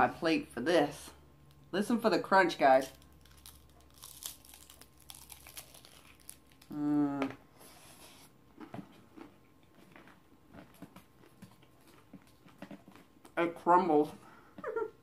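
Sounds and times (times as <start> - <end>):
crunchy chewing: 2.9 - 6.8, 8.6 - 13.4
person humming mmm: 6.7 - 7.4.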